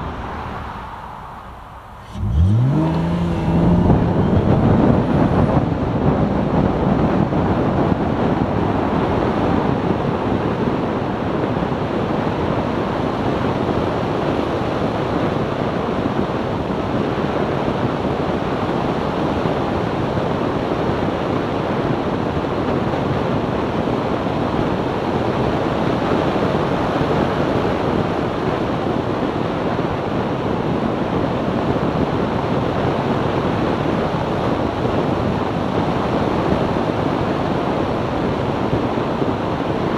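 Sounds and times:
wind rushing: 0.0s - 8.2s
road noise: 0.0s - 39.9s.

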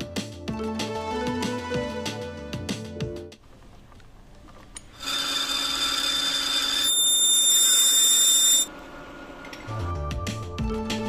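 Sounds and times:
drill cutting whine: 5.0s - 8.7s.

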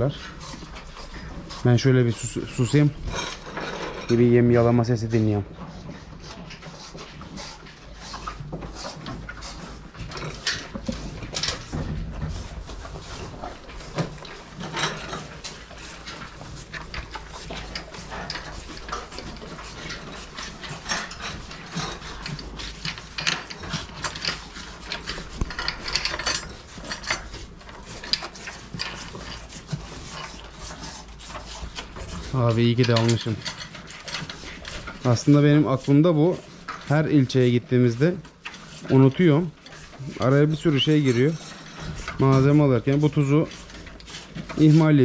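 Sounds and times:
calves licking salt: 0.0s - 3.4s, 4.1s - 45.0s.

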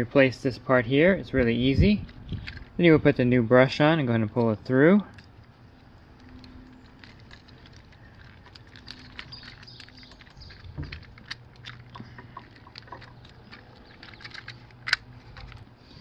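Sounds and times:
plastic clicks and rattles: 2.0s - 2.8s, 6.2s - 15.7s.

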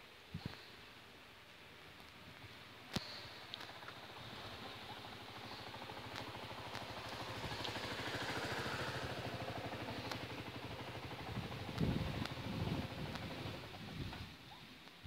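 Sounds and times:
vehicle passing: 3.6s - 13.8s
heavy low rumbles: 3.9s - 14.2s.

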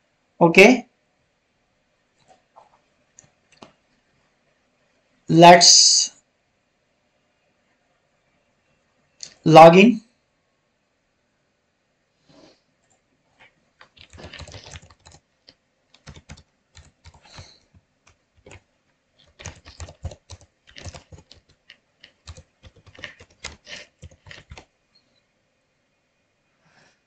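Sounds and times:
typing on computer keyboard: 13.8s - 15.2s, 15.9s - 18.6s, 19.2s - 24.7s.

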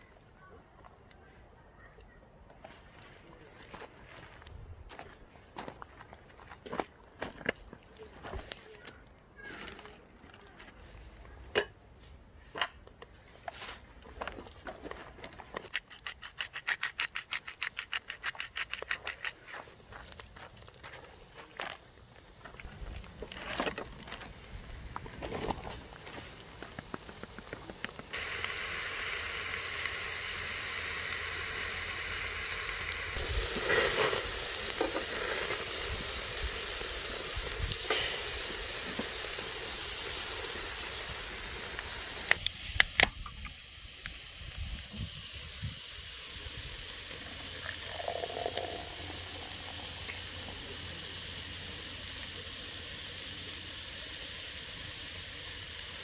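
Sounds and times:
meat sizzling on a grill pan: 25.9s - 56.0s.

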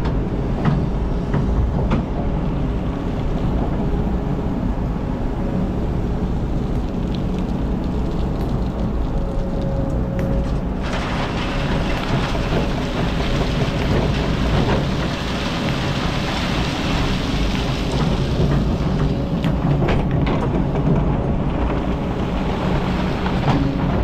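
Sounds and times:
excavator diesel engine running: 7.6s - 24.0s
falling sand and gravel hiss: 10.8s - 18.3s.

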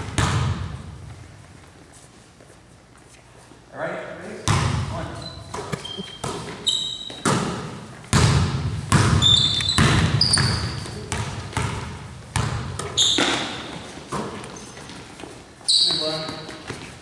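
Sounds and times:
basketball bouncing on gym floor: 0.0s - 1.5s, 4.4s - 15.0s, 15.8s - 16.9s
sneaker squeaks: 4.5s - 17.0s.

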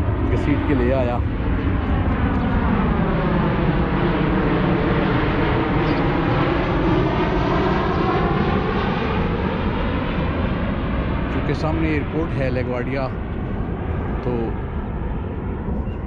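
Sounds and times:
jet airliner passing overhead: 0.0s - 16.0s.

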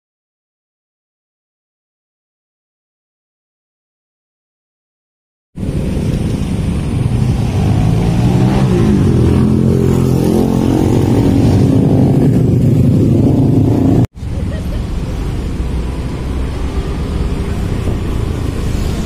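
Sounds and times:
traffic engine drone: 5.6s - 19.0s.

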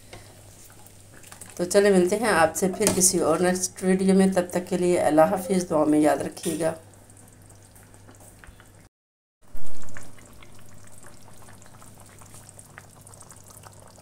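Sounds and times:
gravy bubbling and popping: 0.0s - 3.5s, 5.8s - 8.9s, 9.5s - 14.0s.

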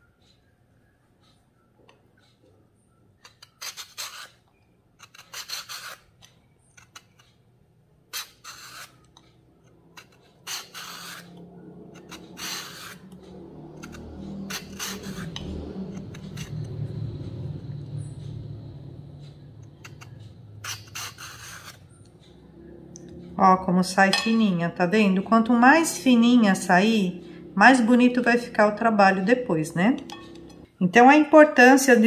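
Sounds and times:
vegetable peeler rasping coconut: 3.2s - 4.4s, 5.0s - 7.4s, 8.1s - 23.3s.

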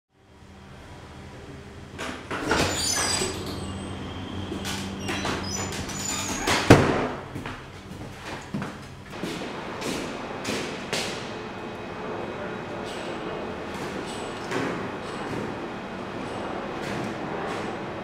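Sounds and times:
steady low hum: 0.2s - 18.0s
door squeaking and rattling: 2.3s - 7.2s
door banging shut: 4.6s - 7.3s.

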